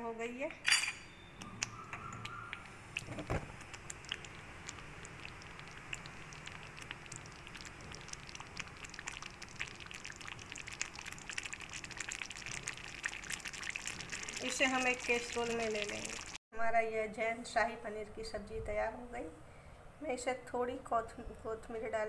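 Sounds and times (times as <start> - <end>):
gravy bubbles popping: 1.6 - 16.4.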